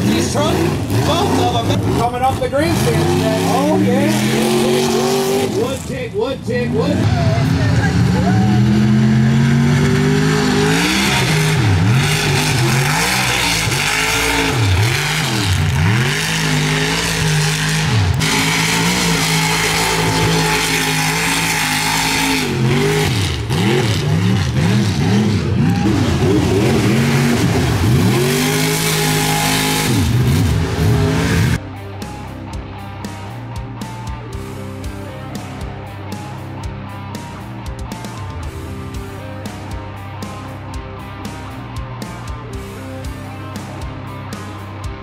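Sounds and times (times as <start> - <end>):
truck engines revving hard: 0.0 - 31.6.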